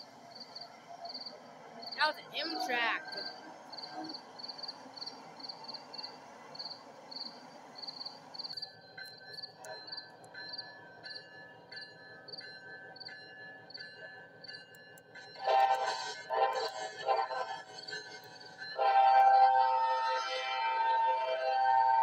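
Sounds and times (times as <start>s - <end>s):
insects chirping: 0.0s - 14.6s
faint steady whine: 0.0s - 19.7s
passing train rushing: 0.0s - 22.0s.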